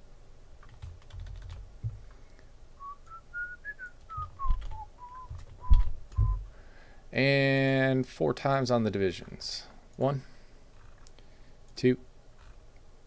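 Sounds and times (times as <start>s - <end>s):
person whistling a tune: 2.8s - 6.5s
keyboard and mouse clicks: 4.1s - 6.4s
dull knock: 5.3s - 6.4s.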